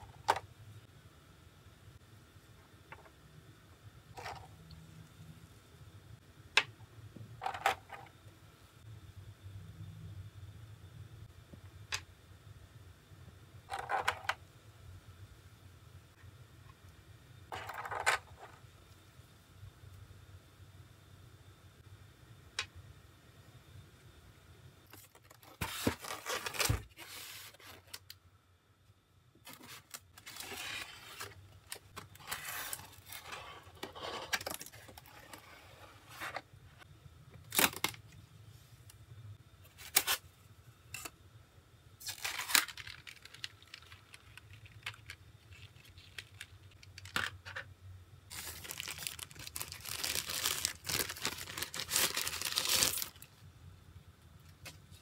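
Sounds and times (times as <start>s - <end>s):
plastic and paper crinkling: 24.9s - 28.1s, 29.4s - 35.4s, 42.0s - 47.4s, 48.3s - 53.3s.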